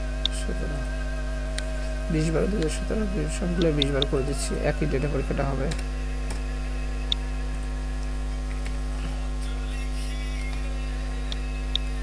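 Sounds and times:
steady tones: 0.0s - 9.0s
electrical mains hum: 0.0s - 12.0s.

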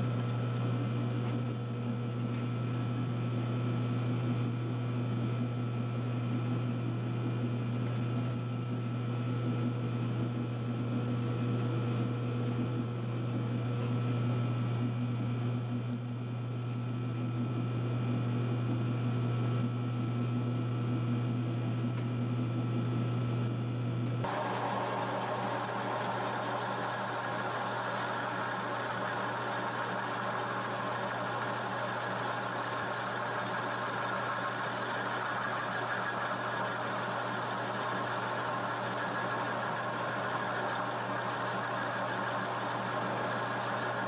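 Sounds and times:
lathe humming: 24.3s - 44.0s.

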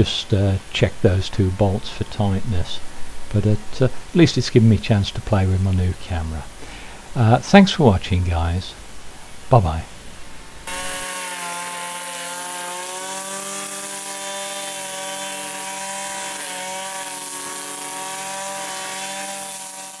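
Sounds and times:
brush cutter engine buzzing: 10.6s - 20.0s.

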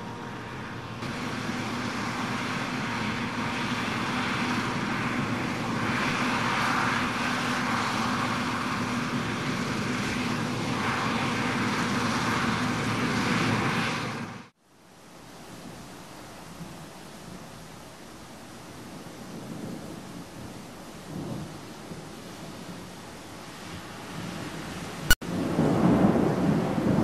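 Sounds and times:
combine harvester droning: 0.0s - 14.4s.

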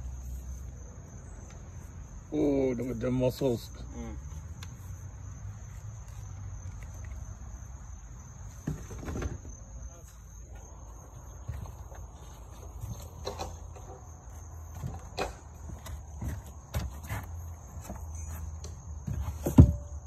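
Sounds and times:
insects trilling: 0.0s - 20.0s
handling knocks and thumps: 8.5s - 9.7s, 11.4s - 20.0s.

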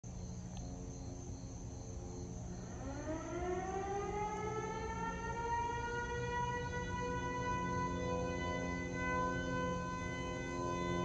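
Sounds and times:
steady low hum: 0.0s - 11.0s
sirens wailing: 2.4s - 11.0s.

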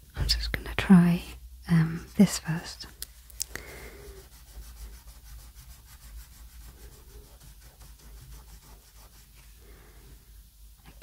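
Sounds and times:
pastel scratching on paper: 1.9s - 2.6s, 3.8s - 9.6s.

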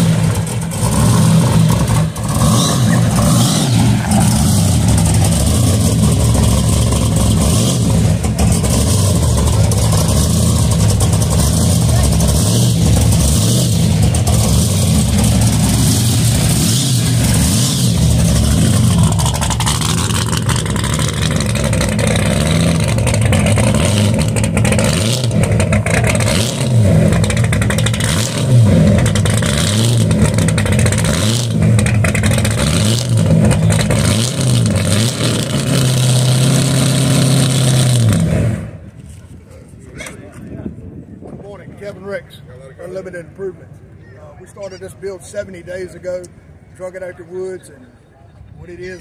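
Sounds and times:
supercharged car engine revving: 0.0s - 38.8s.

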